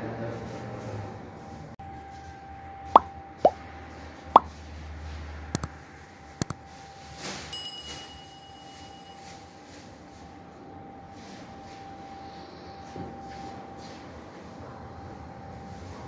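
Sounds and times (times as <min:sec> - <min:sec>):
bell notification chime: 0:07.6 - 0:09.4.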